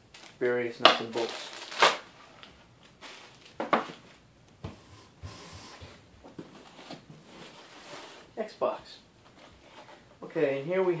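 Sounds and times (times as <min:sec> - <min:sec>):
soft rustles of bagged parts: 0:00.1 - 0:04.3.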